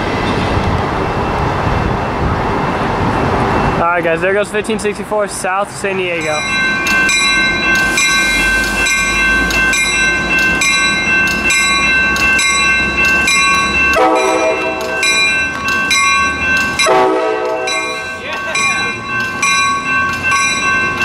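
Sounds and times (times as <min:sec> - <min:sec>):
train rumbling: 0:00.0 - 0:21.0
high ringing tones: 0:06.1 - 0:21.0
train horn blast: 0:14.0 - 0:15.0, 0:16.8 - 0:17.9.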